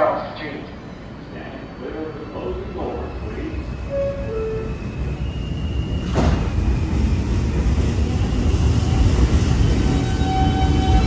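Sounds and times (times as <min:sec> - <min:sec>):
train low rumble: 0:00.0 - 0:11.0
train doors banging shut: 0:06.0 - 0:06.6.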